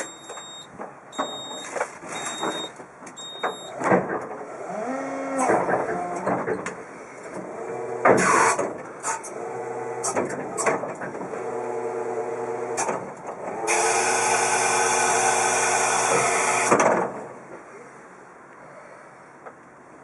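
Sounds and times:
clicks and clunks: 0.0 - 4.4, 5.4 - 9.4, 10.0 - 11.3.

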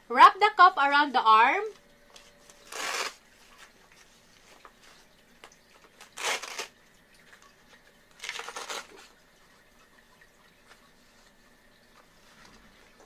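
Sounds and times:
hook-and-loop fastener ripping: 2.5 - 3.2, 6.0 - 6.8, 8.2 - 9.1.

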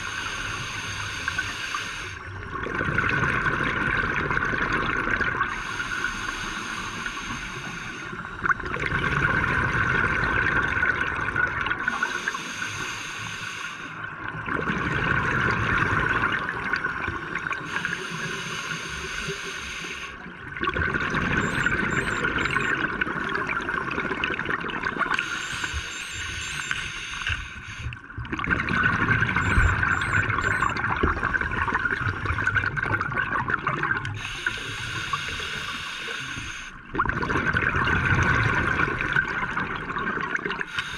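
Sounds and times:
diver breathing through regulator: 0.0 - 2.2, 11.9 - 14.0, 17.7 - 20.2, 25.2 - 28.0, 34.2 - 36.8, 40.7 - 40.9
gurgling bubbles: 2.2 - 5.9, 8.2 - 12.3, 14.0 - 19.2, 20.2 - 36.0, 36.8 - 40.9.

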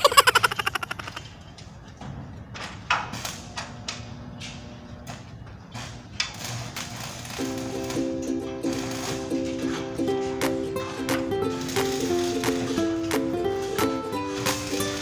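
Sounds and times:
plucked string music: 7.4 - 15.0.

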